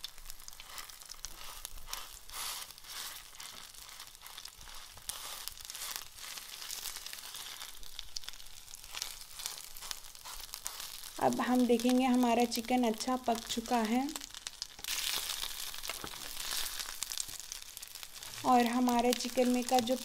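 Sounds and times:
chicken sizzling in oil: 0.0s - 20.0s
spatula scraping a pan: 0.4s - 7.8s, 8.8s - 11.2s.

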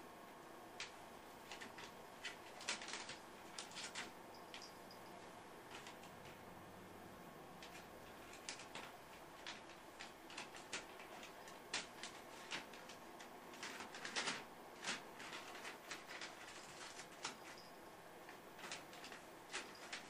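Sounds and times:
paper rustling and crinkling: 1.4s - 4.7s, 7.6s - 17.7s, 18.3s - 20.0s.

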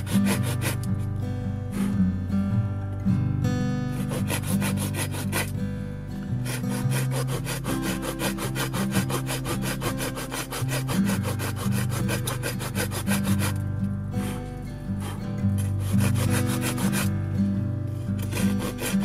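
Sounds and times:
handsaw cutting wood: 0.0s - 1.1s, 3.9s - 5.6s, 6.4s - 13.6s, 14.2s - 19.0s.

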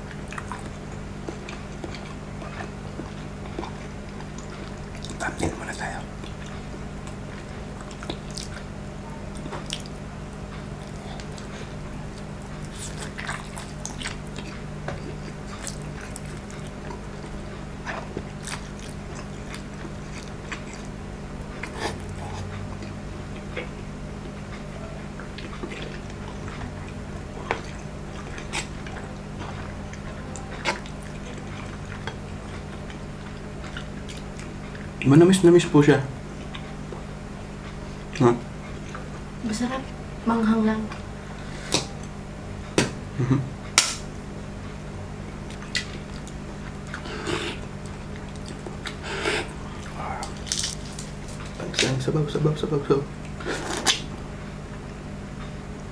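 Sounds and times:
chewing and slurping: 0.0s - 35.1s, 45.4s - 51.6s
steady low hum: 0.0s - 55.9s.

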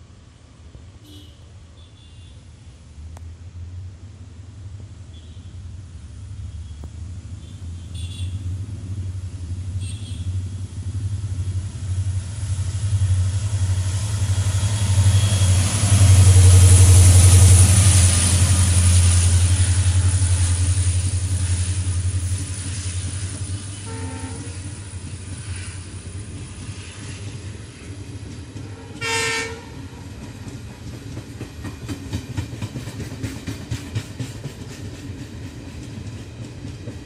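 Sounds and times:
locomotive engine rumble: 5.6s - 34.8s
train wheels hissing on rails: 5.6s - 37.0s.

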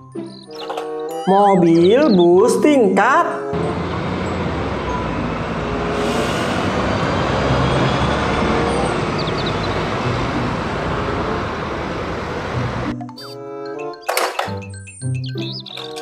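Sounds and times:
music: 0.0s - 16.0s
bus engine humming: 3.4s - 13.0s
passing traffic hiss: 5.2s - 12.7s.

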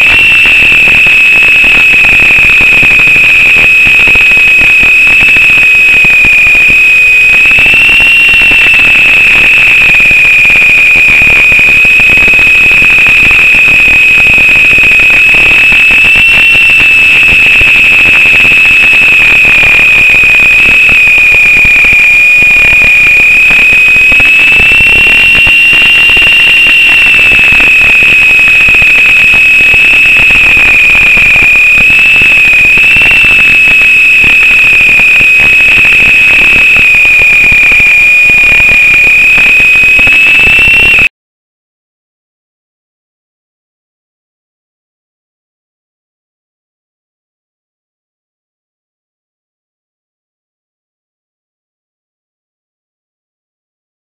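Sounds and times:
high-pitched motor whine: 0.0s - 41.1s.

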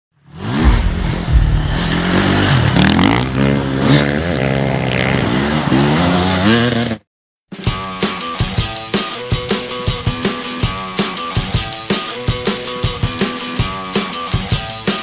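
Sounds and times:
motorcycle engine revving: 0.2s - 7.0s.

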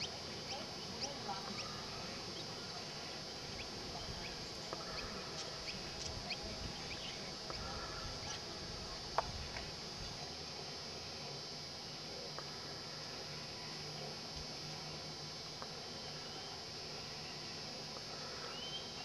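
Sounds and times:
birds chirping: 0.0s - 8.5s, 18.2s - 19.0s
high-pitched hiss: 0.0s - 19.0s.

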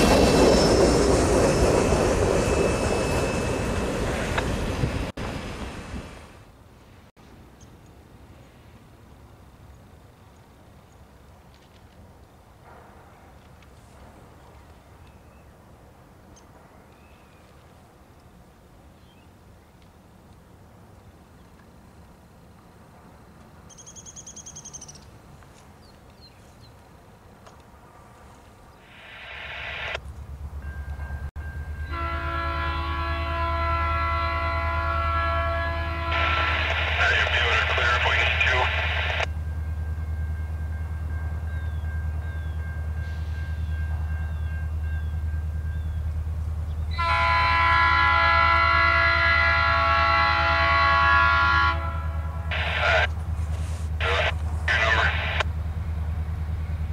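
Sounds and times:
bird chirps: 23.7s - 25.1s
locomotive air horn blast: 31.9s - 36.7s, 46.9s - 52.8s.

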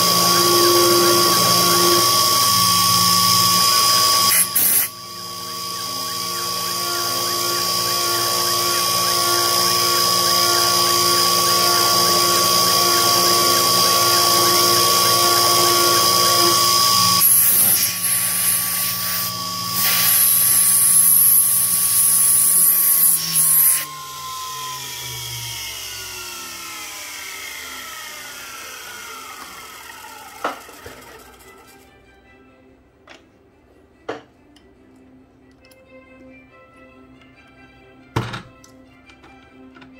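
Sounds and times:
mill spindle whining: 0.0s - 31.8s
loud hiss: 4.3s - 5.0s, 17.2s - 23.9s.

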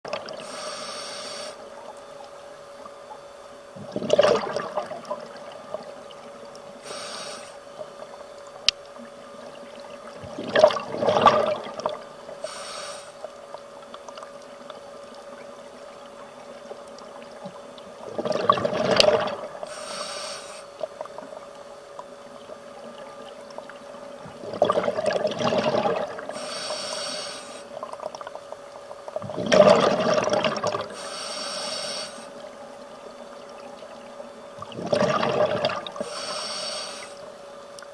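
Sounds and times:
faint steady hum: 0.0s - 37.9s
hissing regulator inhalation: 0.4s - 1.7s, 6.8s - 7.6s, 12.4s - 13.3s, 19.7s - 20.8s, 26.3s - 27.8s, 30.9s - 32.4s, 36.0s - 37.3s
bubbling exhalations underwater: 3.8s - 5.9s, 10.2s - 12.1s, 18.0s - 19.6s, 24.3s - 26.4s, 29.2s - 31.0s, 34.6s - 36.0s.

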